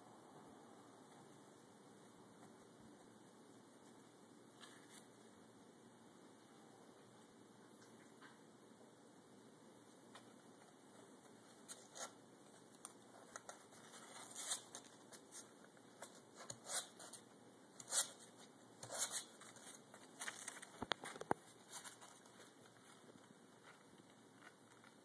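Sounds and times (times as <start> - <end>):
rustling and scratching on cardboard: 10.2 - 25.0.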